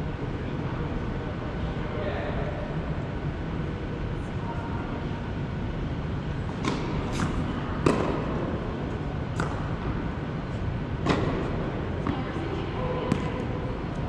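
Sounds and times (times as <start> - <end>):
steady low hum: 0.0 - 14.0
tennis ball hitting racket and court: 6.5 - 10.0, 11.0 - 12.2, 13.0 - 13.5.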